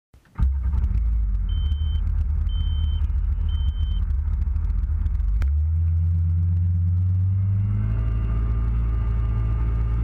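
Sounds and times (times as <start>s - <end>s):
jet ski engine rumble: 0.4s - 5.8s
short high beeps: 1.5s - 4.0s.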